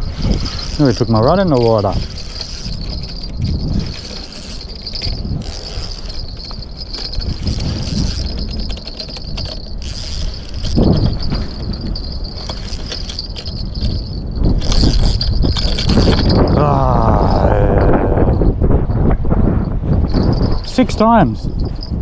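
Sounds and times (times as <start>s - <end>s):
wind rumbling on microphone: 0.0s - 22.0s
fishing reel clicking: 0.1s - 16.6s.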